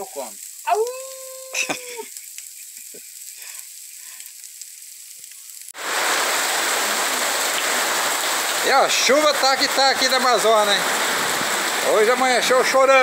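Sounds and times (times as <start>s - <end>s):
faint high hiss: 0.0s - 13.0s
heavy rain downpour: 0.0s - 13.0s
man howling like a dog: 0.6s - 2.0s.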